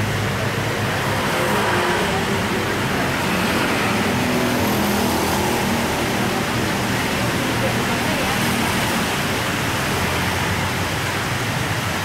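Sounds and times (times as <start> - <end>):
heavy rain pouring: 0.0 - 12.0
motorbikes passing: 0.0 - 12.0.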